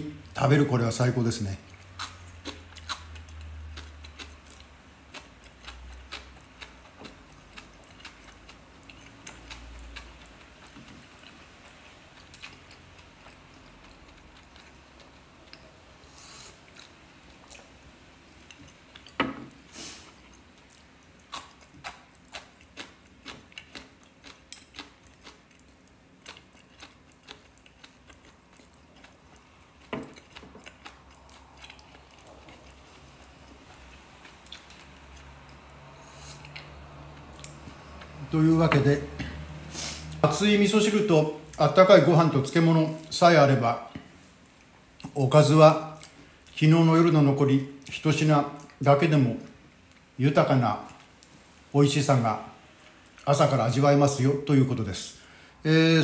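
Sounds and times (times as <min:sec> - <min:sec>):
quiet chewing: 0:01.6 - 0:17.8, 0:18.4 - 0:19.2, 0:19.8 - 0:38.3.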